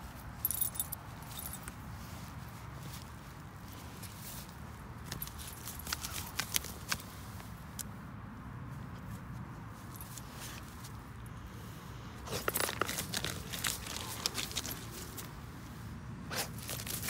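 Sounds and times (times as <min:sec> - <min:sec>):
dog digging in leaf litter: 0:12.2 - 0:15.3, 0:16.3 - 0:17.0.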